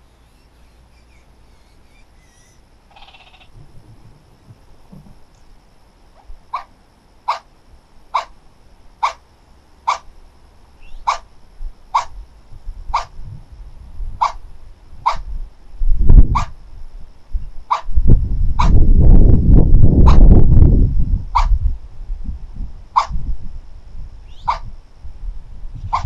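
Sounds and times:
sharp animal call: 0.0s - 3.5s, 6.5s - 7.5s, 8.1s - 8.4s, 9.0s - 9.2s, 9.9s - 10.1s, 10.8s - 11.3s, 11.9s - 12.2s, 12.9s - 13.2s, 14.2s - 14.4s, 15.0s - 15.3s, 16.3s - 16.6s, 17.7s - 17.9s, 23.0s - 23.2s, 24.3s - 24.7s.

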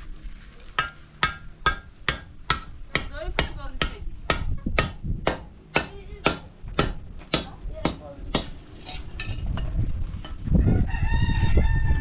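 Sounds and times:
hard metallic knocks hammering: 0.8s - 8.6s.

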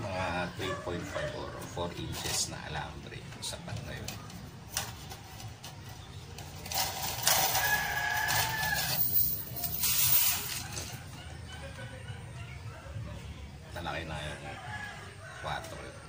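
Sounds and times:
outdoor background noise: 0.0s - 16.0s
rooster crowing: 7.3s - 9.2s, 14.3s - 16.0s.

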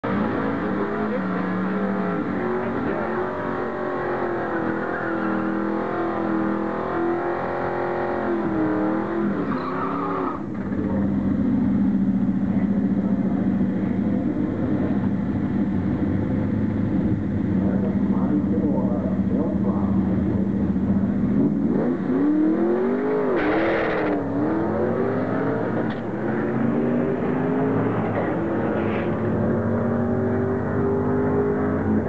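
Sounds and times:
car engine revving hard: 0.0s - 32.0s
car engine idling: 10.4s - 21.8s.

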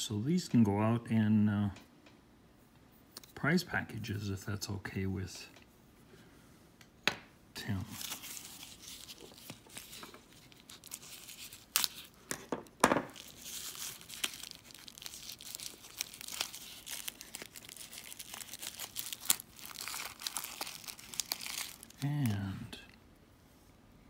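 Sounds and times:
paper wrapping crinkling: 7.6s - 12.5s, 13.1s - 22.5s
paper ripping: 7.8s - 12.2s, 13.1s - 22.4s.

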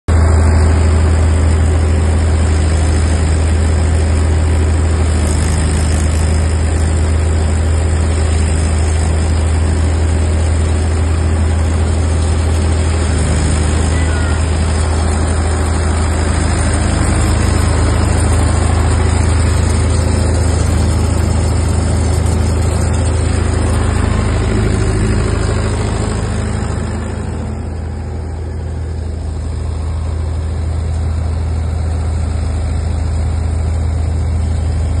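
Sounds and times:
thresher whirring: 0.1s - 35.0s
tractor engine running: 0.1s - 35.0s.

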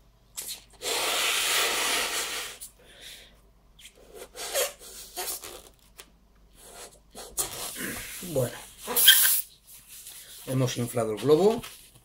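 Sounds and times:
balloon being inflated: 0.4s - 2.7s, 3.8s - 5.8s, 6.6s - 9.5s
rubbing of balloon rubber: 4.0s - 5.8s.

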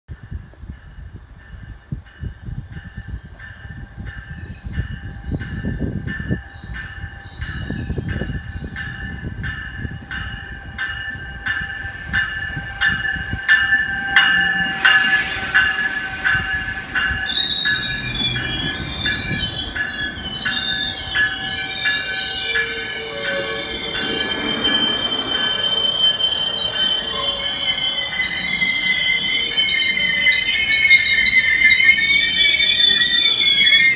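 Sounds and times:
train bell ringing: 0.2s - 33.9s
train wheels and brakes squealing: 0.7s - 33.9s
air hiss: 11.5s - 19.2s.

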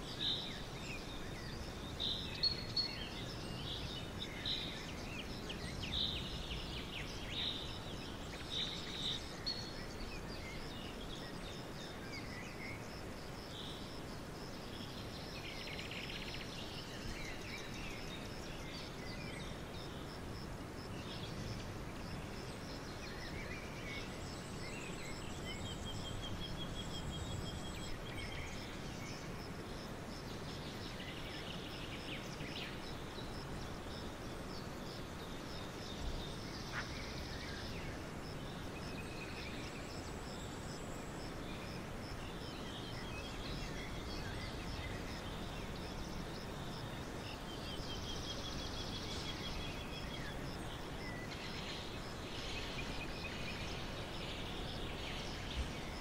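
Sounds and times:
outdoor background noise: 0.0s - 56.0s
small songbirds chirping: 0.0s - 56.0s.

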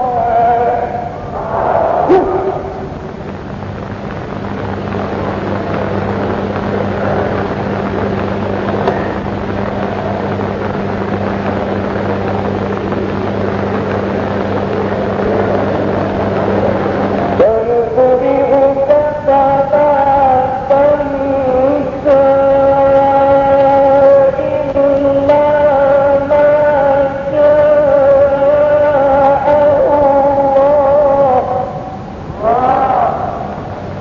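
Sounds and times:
man chanting: 0.0s - 1.4s, 17.4s - 33.6s
low electrical hum: 0.0s - 34.0s
steady rushing noise: 0.0s - 34.0s.

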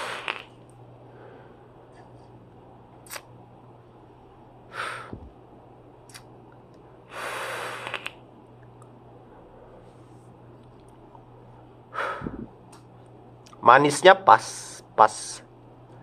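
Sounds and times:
person breathing: 1.0s - 2.0s, 4.7s - 5.3s, 7.1s - 8.1s, 11.9s - 12.5s.

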